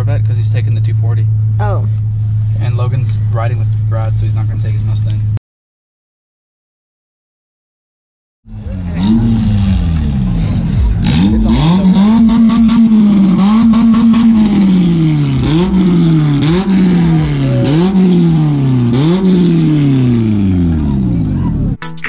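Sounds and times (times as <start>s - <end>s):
car engine revving: 8.5s - 21.8s.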